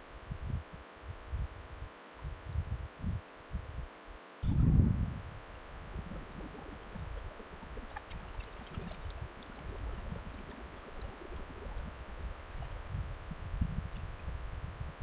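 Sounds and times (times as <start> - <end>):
wind rumble on microphone: 0.0 - 15.0.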